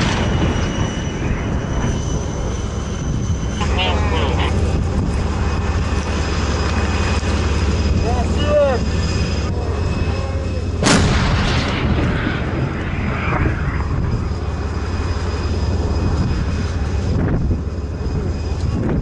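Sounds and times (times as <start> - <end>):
low engine drone: 0.0 - 19.0
tank gun blast: 10.8 - 12.8.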